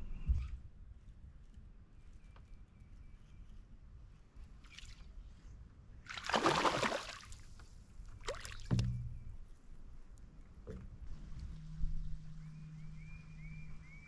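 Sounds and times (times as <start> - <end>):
fish splashing at water surface: 6.1 - 7.5.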